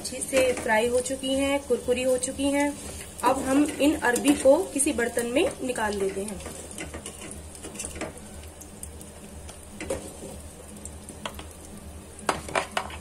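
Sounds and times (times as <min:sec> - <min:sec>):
oil sizzling: 0:00.0 - 0:13.0
spoon scraping pan: 0:02.6 - 0:04.5, 0:05.1 - 0:08.2.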